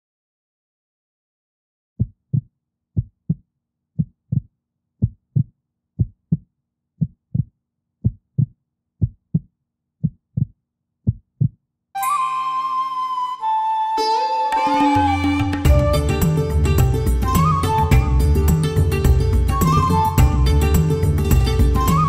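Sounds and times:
heartbeat thumps: 0:10.4 - 0:11.6
music with sustained tones: 0:12.0 - 0:22.0.

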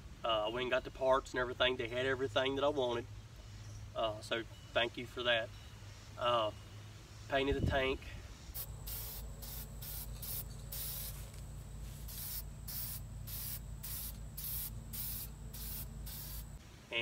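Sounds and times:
spray paint can hissing: 0:08.6 - 0:11.3, 0:12.0 - 0:16.6.

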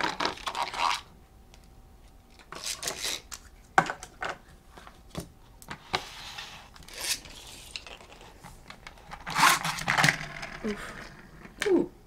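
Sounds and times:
plastic rubbing scrape: 0:09.0 - 0:11.5.

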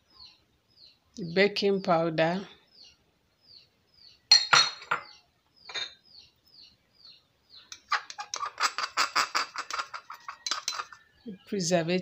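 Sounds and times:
small bird chirping: 0:00.0 - 0:11.8
spoon clinking glass bowls: 0:04.3 - 0:05.1, 0:05.7 - 0:06.0, 0:07.7 - 0:11.1.

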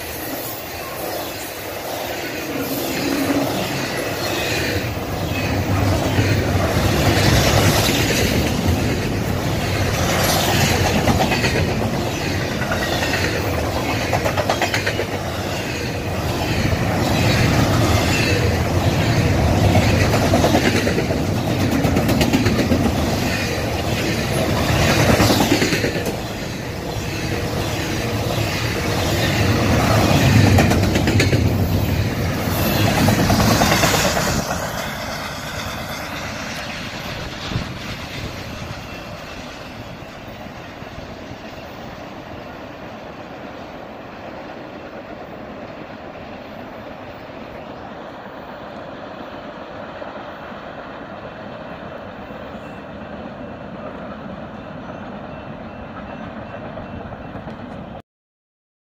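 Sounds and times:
train wheels clattering: 0:05.5 - 0:16.0, 0:28.4 - 0:40.6.

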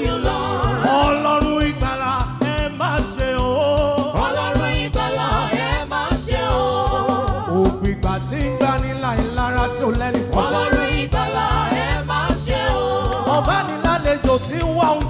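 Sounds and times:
band with steady drum beat: 0:00.0 - 0:15.0
gospel singing: 0:00.0 - 0:15.0.

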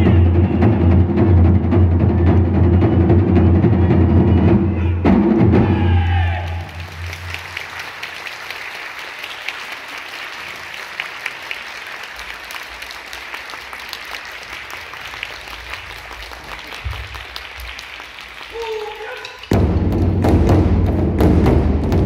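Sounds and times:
audience applauding: 0:06.3 - 0:20.2.

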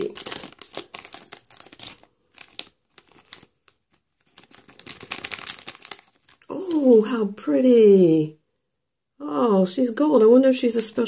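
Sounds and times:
plastic packet crinkling: 0:00.0 - 0:07.1.

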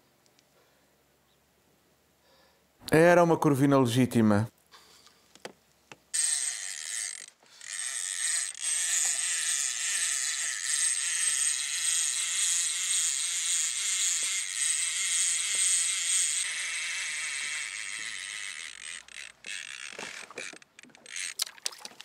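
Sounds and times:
fishing reel whirring: 0:06.2 - 0:21.5.

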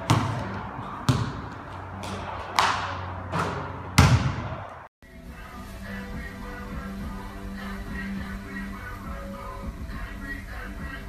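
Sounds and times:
basketball bouncing on wooden floor: 0:00.0 - 0:04.7
faint music: 0:00.0 - 0:11.0.

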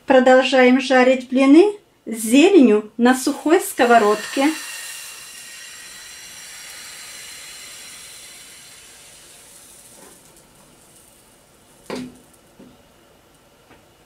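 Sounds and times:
batter sizzling in frying pan: 0:03.6 - 0:12.6.

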